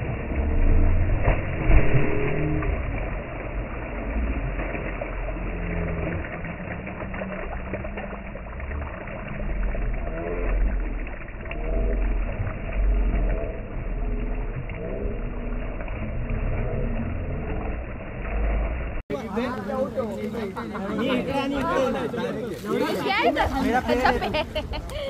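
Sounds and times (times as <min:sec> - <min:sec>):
low rumble: 0:00.0 - 0:19.0
lake water splashing: 0:00.0 - 0:25.0
voices: 0:19.1 - 0:25.0.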